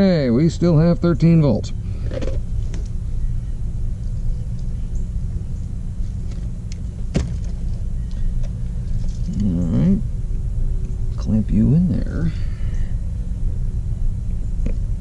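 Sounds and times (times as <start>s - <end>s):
low mechanical rumble: 0.0s - 15.0s
voiced hum: 0.0s - 15.0s.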